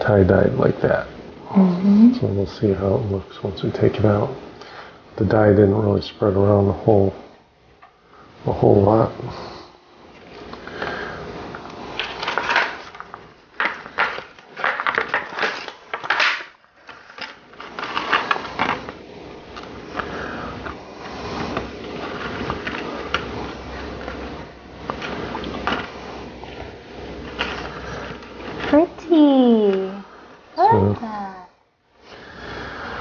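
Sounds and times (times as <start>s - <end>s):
crinkling and rustling: 11.5s - 29.0s.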